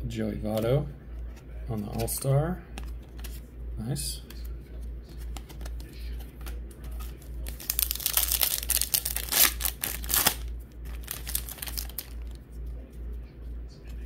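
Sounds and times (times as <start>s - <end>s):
foil wrapper crinkling and tearing: 6.9s - 12.4s.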